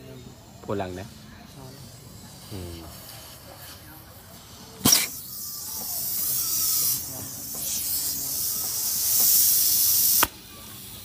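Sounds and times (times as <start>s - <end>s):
compressed air hissing: 0.0s - 11.0s
sharp pop: 4.8s - 5.2s, 9.1s - 10.4s.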